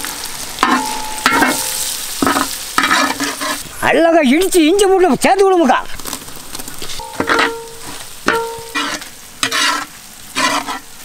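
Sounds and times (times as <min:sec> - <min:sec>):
onions sizzling in oil: 0:00.0 - 0:11.0
pan ringing: 0:00.6 - 0:02.9, 0:07.0 - 0:09.0
utensil scraping metal pan: 0:00.6 - 0:03.6, 0:06.8 - 0:10.9.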